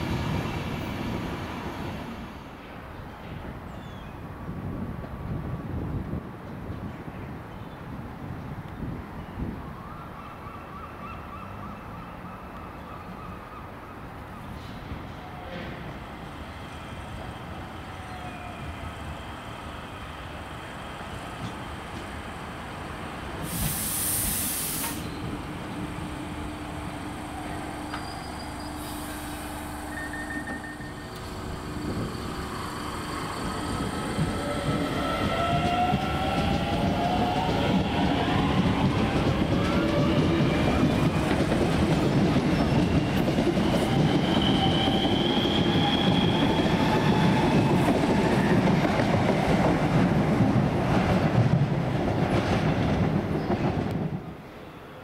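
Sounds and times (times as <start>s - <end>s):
wheels rumbling on rails: 24.9s - 54.4s.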